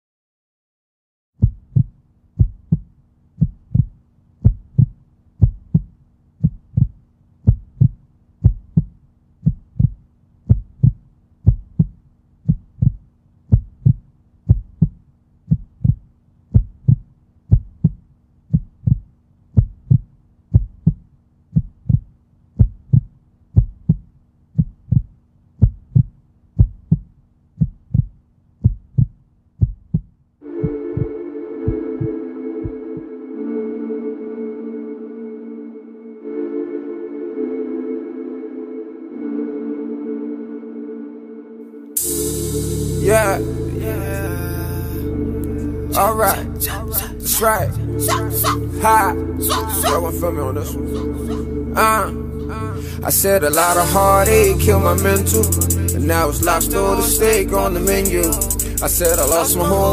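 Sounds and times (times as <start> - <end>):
heartbeat thumps: 1.4 - 33.1.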